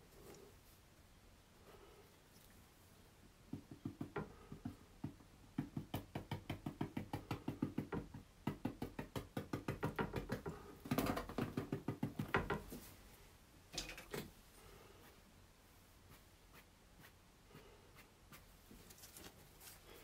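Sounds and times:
paintbrush tapping on canvas: 3.5s - 10.6s, 11.2s - 12.8s.

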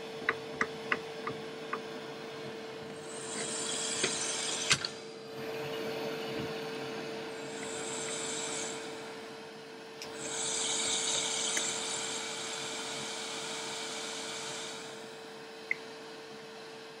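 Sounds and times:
pillar drill motor hum: 0.1s - 16.8s
drill bit cutting metal hissing: 3.0s - 4.9s, 7.3s - 9.4s, 10.1s - 15.2s.

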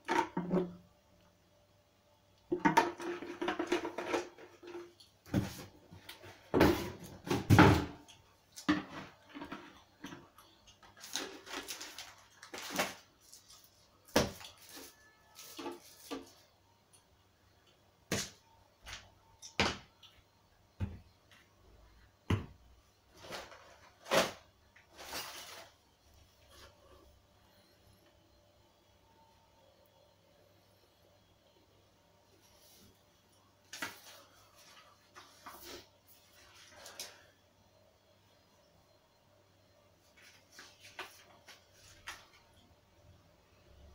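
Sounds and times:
objects thudding on tiled floor: 6.5s - 8.0s.

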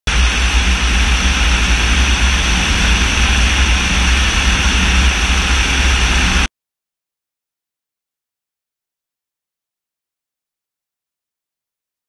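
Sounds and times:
heavy low rumble: 0.0s - 6.5s
drone engine and airflow rushing: 0.1s - 6.5s.

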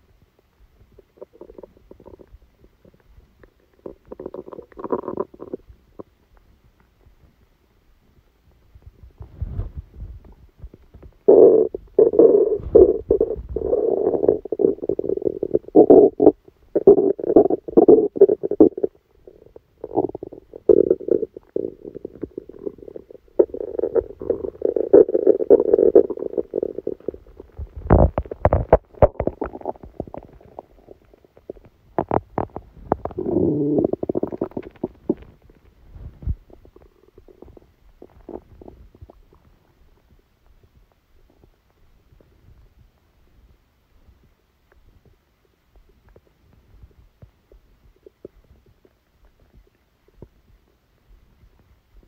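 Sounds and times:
stomach growling and gurgling: 0.8s - 6.2s, 8.6s - 52.0s
sharp pops and clicks: 23.4s - 35.7s.

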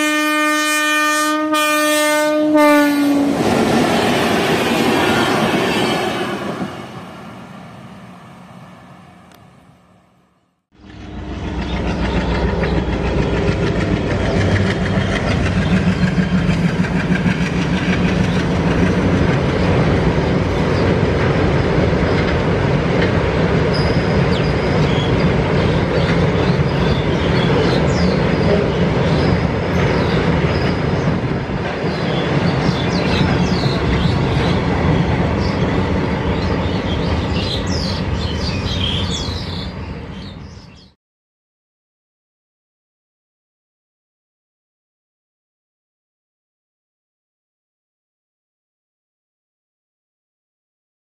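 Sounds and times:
train wheels clattering on rails: 11.4s - 39.0s.

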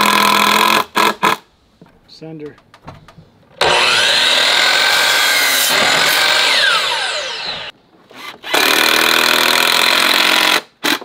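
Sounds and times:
miter saw whining: 3.6s - 7.7s
saw cutting wooden board: 3.6s - 8.8s.

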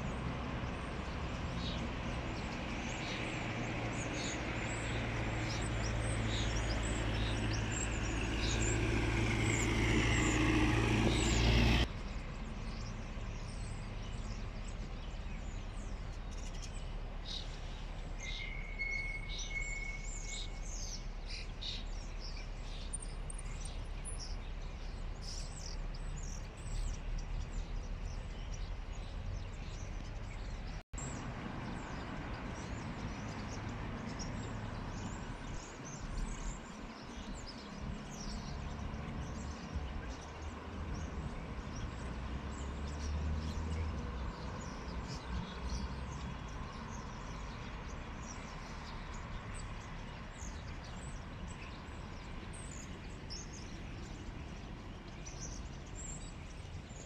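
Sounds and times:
low vehicle rumble: 0.0s - 18.2s
small birds chirping: 0.0s - 57.0s.

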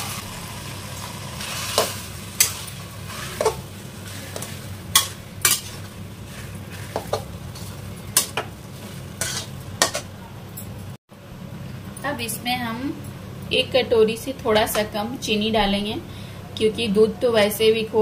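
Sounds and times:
metal spatula scraping a pan: 1.4s - 10.1s.

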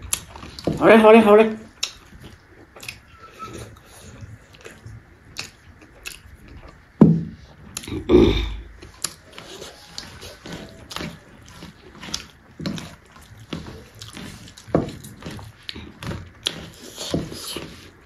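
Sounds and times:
chewing and mouth smacking: 0.0s - 0.7s, 1.7s - 18.0s
fingers scraping steel bowls: 3.1s - 3.8s.

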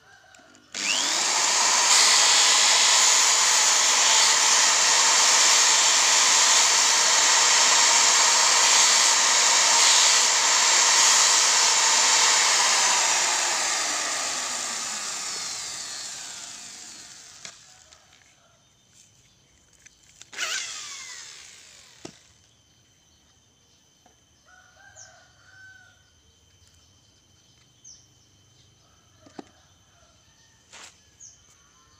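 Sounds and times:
electric drill whining and winding down: 0.2s - 18.4s, 20.1s - 22.5s.

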